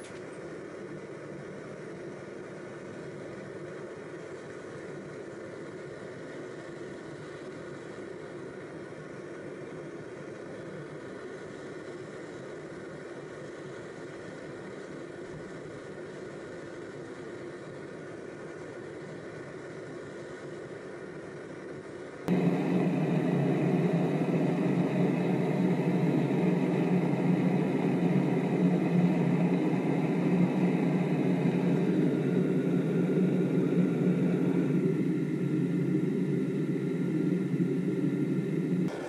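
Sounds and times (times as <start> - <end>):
furnace mechanical rush: 22.3 - 39.0.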